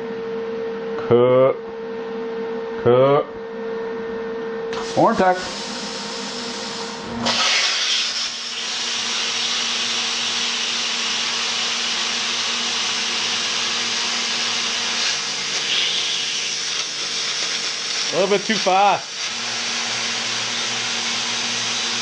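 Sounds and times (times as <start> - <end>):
plasma cutter hissing: 4.7 - 19.4.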